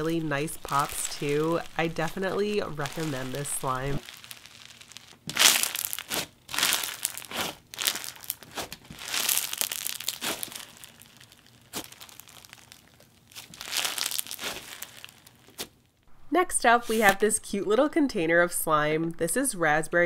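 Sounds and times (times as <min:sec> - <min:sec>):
bead slime crunching and popping: 0:00.4 - 0:15.8.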